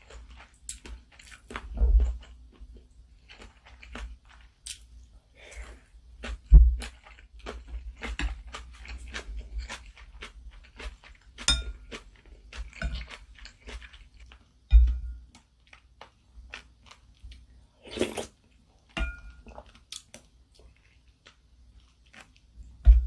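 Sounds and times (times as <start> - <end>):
chewing: 0.0 - 4.9, 5.5 - 14.5
utensils clinking on ceramic bowl: 11.4 - 12.0, 18.9 - 19.6.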